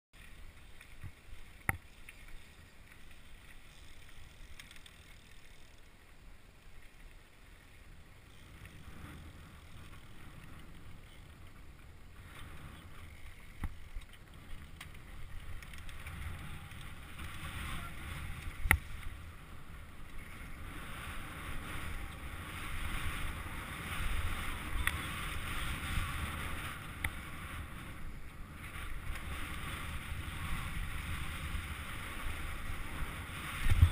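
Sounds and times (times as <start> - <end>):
bike rattling: 0.2 - 33.9
bike tyres rolling on gravel: 0.2 - 33.9
wind noise on microphone: 8.4 - 33.9.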